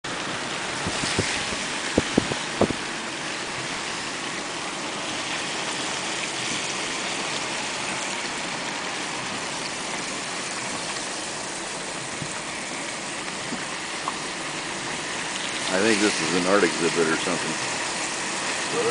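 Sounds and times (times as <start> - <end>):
car road and engine noise: 0.1 - 18.9
sharp knocks: 0.8 - 2.8.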